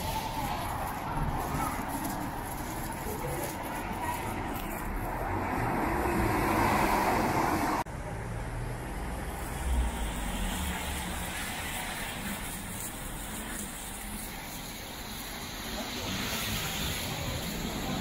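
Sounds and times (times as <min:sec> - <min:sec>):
road traffic on wet street: 0:00.0 - 0:18.0
tyre hiss: 0:09.4 - 0:18.0.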